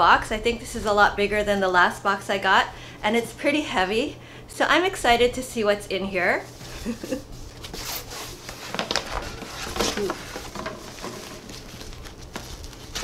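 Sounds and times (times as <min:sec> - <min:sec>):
packing paper rustling: 0:06.8 - 0:13.0
cardboard box being opened: 0:07.6 - 0:13.0.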